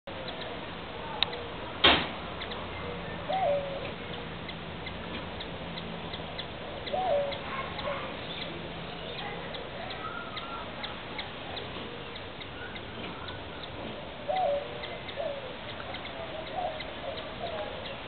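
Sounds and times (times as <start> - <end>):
hummingbird chipping: 0.1 - 18.0
low hooting bird call: 2.4 - 5.0, 5.8 - 11.3, 11.9 - 18.0.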